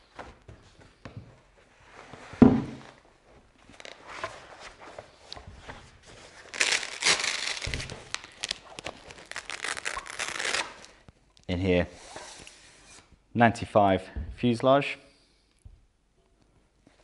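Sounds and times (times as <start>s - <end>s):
padded bag rustling and crinkling: 3.6s - 10.6s.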